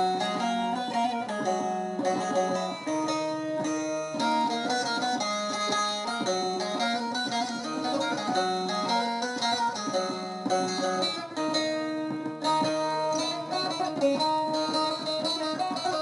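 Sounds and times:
plucked string instruments: 0.0s - 16.0s.

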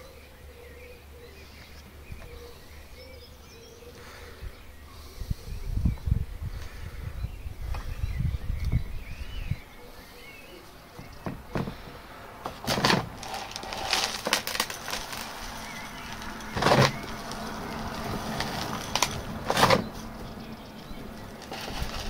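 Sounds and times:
grit pouring and rattling: 12.6s - 19.7s, 21.3s - 22.0s.

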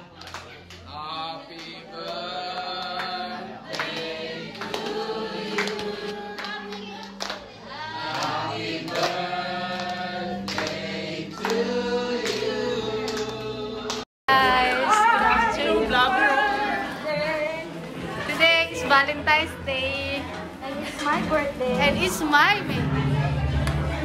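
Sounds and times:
group singing a birthday song: 0.0s - 24.0s
hand claps: 0.1s - 0.8s, 1.5s - 7.5s, 8.1s - 9.2s, 9.8s - 10.8s, 11.4s - 14.1s.

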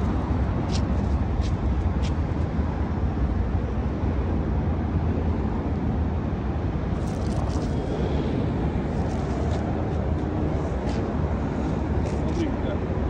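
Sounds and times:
low outdoor rumble: 5.0s - 13.0s.

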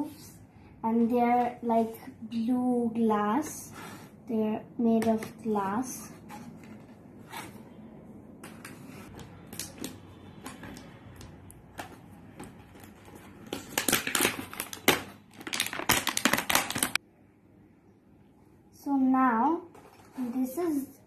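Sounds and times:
plastic packaging crackling: 9.1s - 17.0s.

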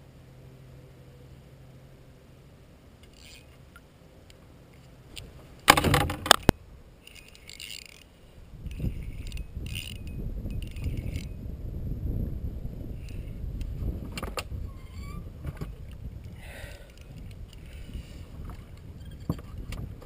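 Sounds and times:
fishing gear clattering: 3.1s - 3.5s, 5.6s - 8.1s, 9.1s - 10.0s
short metallic rattles: 5.6s - 8.1s
sharp knocks: 5.7s - 6.5s.

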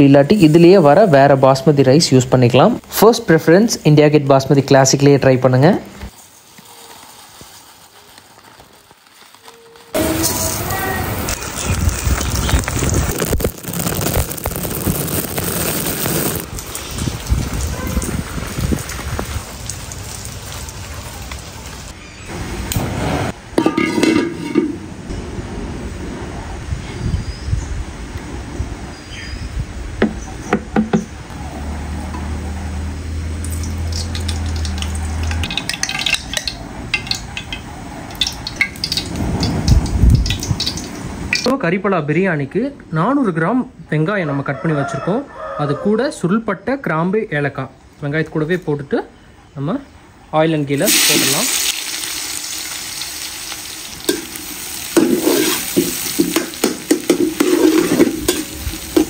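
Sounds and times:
oil sizzling: 5.9s - 25.2s, 31.6s - 41.5s, 50.8s - 59.0s
spoon scraping metal pot: 23.6s - 24.8s, 55.0s - 59.0s.

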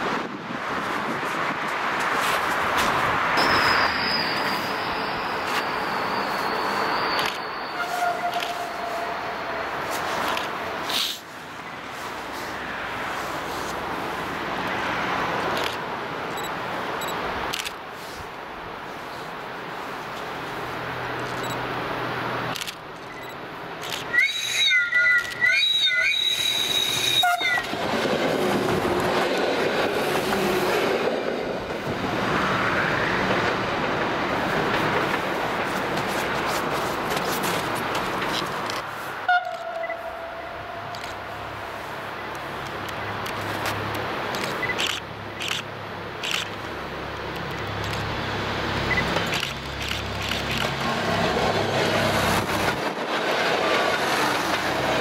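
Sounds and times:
diesel railcar engine: 0.0s - 55.0s
train horn: 7.7s - 9.5s, 26.9s - 27.7s, 39.3s - 40.9s.

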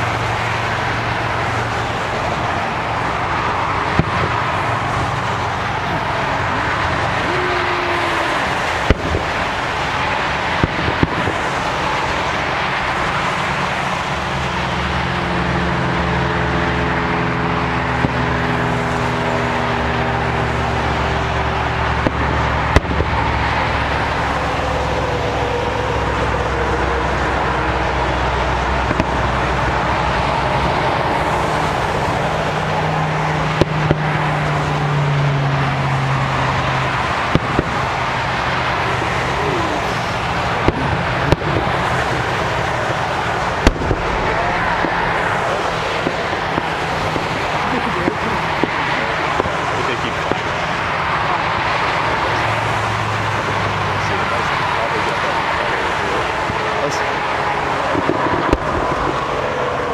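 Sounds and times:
firework bangs: 0.0s - 59.9s
road traffic noise: 0.0s - 59.9s
vehicle engine humming: 0.0s - 59.9s.

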